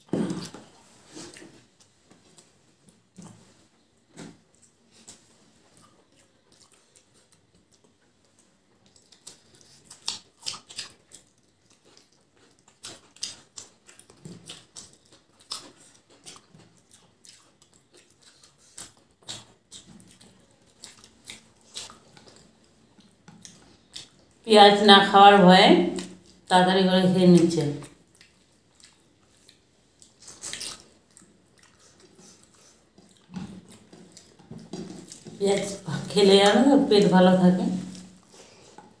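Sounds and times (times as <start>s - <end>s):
wet chewing and lip-smacking: 4.5s - 24.4s, 25.9s - 26.5s, 27.8s - 35.9s.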